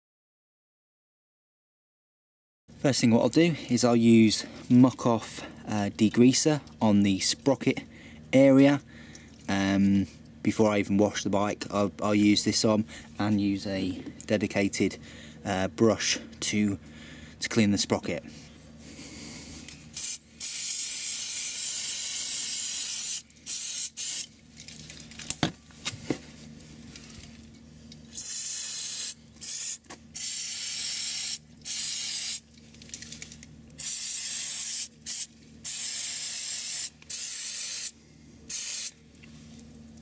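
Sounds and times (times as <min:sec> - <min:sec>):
aerosol can spraying: 0:20.0 - 0:24.3, 0:28.2 - 0:32.4, 0:33.8 - 0:37.9, 0:38.5 - 0:38.9.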